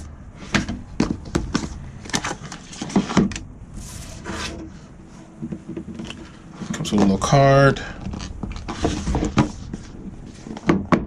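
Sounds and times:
cardboard sliding rustle: 1.5 - 5.4, 8.1 - 10.7.

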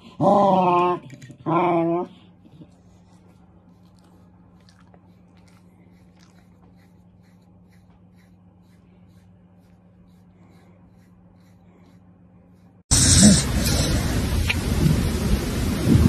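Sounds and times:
brush scratching through fur: 2.7 - 13.8.

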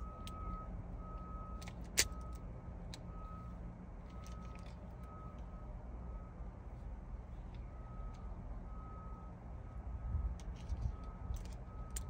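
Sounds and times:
car warning chime beeping: 0.0 - 2.4, 7.7 - 10.3
low steady hum: 0.0 - 12.0.

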